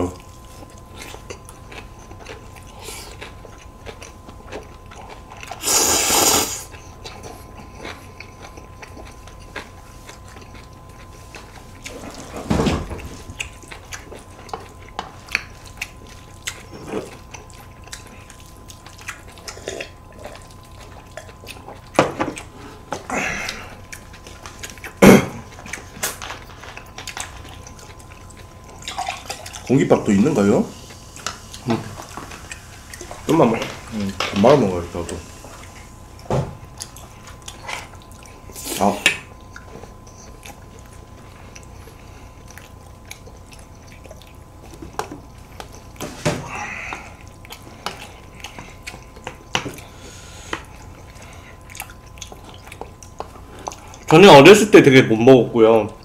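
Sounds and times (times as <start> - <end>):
chewing with clicks and smacks: 0.0 - 5.6, 6.7 - 12.4, 13.0 - 56.0
noodles being slurped: 5.5 - 6.7.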